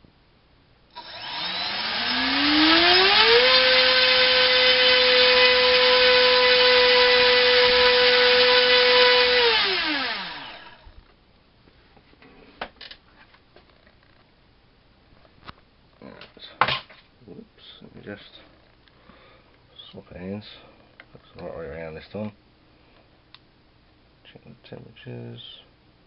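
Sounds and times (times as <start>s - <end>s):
electric motor propeller whine: 1.0s - 10.8s.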